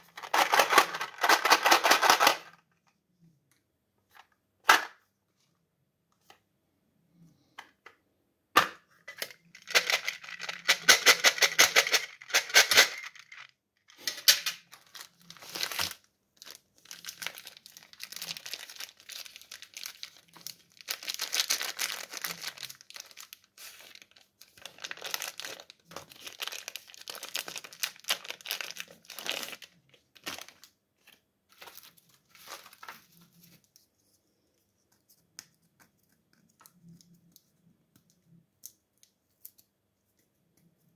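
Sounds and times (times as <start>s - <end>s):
plastic wrappers crinkling and tearing: 0.0s - 2.6s, 9.5s - 33.7s.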